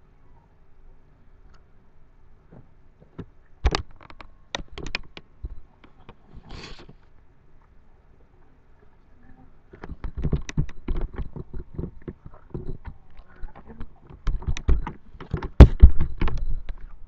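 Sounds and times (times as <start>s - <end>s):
sharp clicks and knocks: 2.5s - 6.2s, 9.7s - 17.0s.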